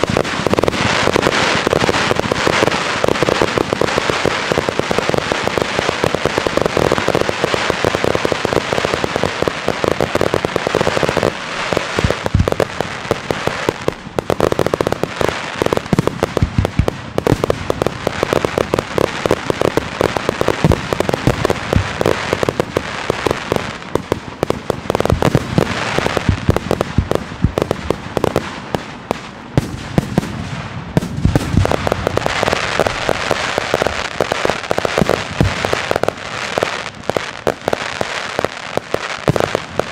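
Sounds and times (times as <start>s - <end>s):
fireworks bangs and crackle: 0.0s - 39.9s.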